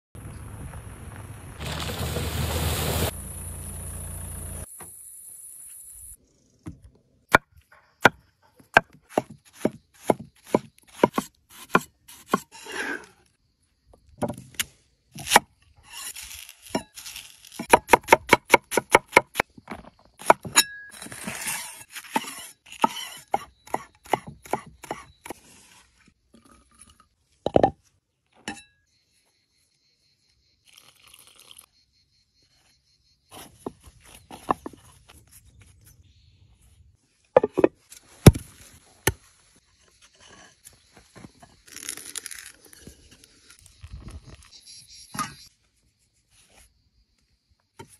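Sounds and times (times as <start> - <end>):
vehicle splashing through river: 1.1 - 4.6
knife chopping on wooden board: 8.7 - 12.5.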